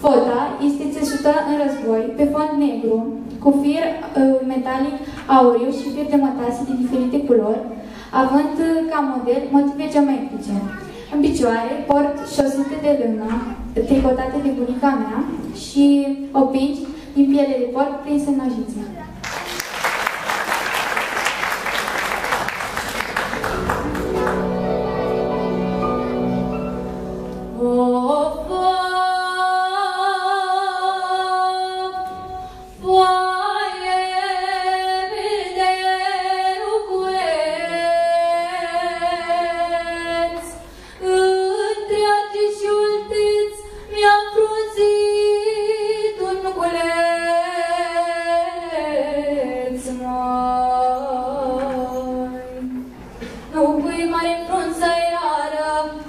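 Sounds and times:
applause: 19.2s - 24.9s
woman singing folk song: 27.5s - 52.8s, 53.5s - 56.0s.

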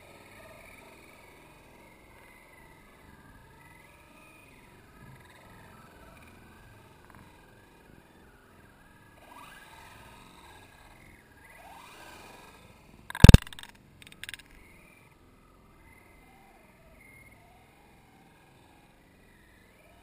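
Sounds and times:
soft clicks: 13.1s - 14.6s.

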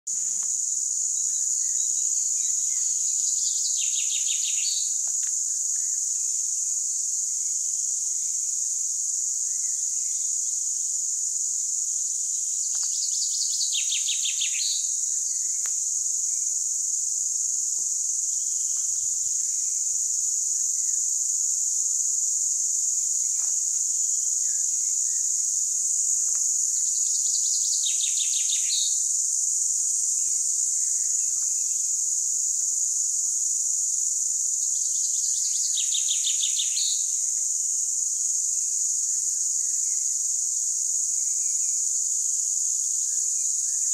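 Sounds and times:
high-pitched insect chorus: 0.1s - 43.9s
faint bird chirps: 1.2s - 5.1s, 12.3s - 15.7s.

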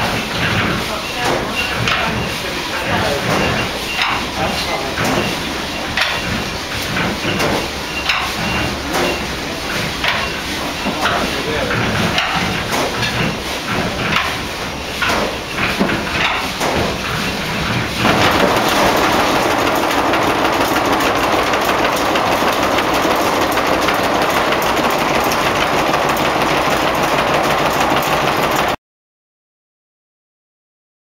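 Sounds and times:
loud steady machine noise: 0.0s - 28.8s
oil engine running mill machinery: 0.0s - 28.8s
irregular engine knocks: 3.0s - 28.8s.

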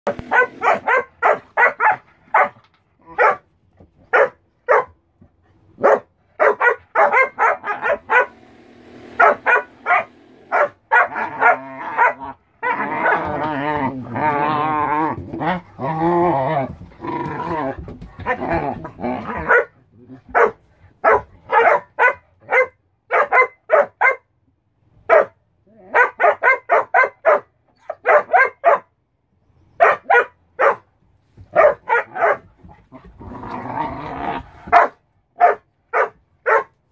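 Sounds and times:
dogs barking: 0.1s - 3.5s, 4.1s - 5.0s, 5.8s - 13.5s, 19.2s - 24.2s, 25.1s - 28.9s, 29.8s - 30.9s, 31.5s - 32.5s, 34.7s - 36.8s.

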